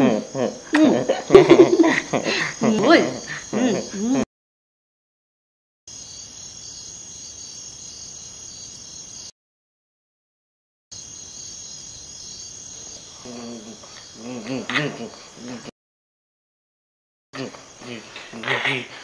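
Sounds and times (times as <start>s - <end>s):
crickets chirring: 0.0s - 4.2s, 5.9s - 9.3s, 10.9s - 15.7s.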